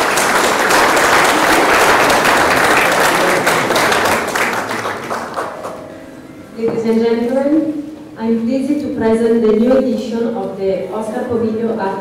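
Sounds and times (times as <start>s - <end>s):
audience applause: 0.0s - 5.9s.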